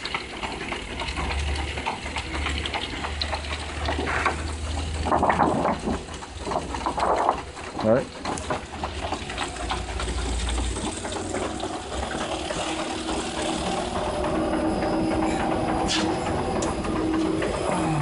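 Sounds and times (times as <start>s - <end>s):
machine humming: 8.2s - 18.0s.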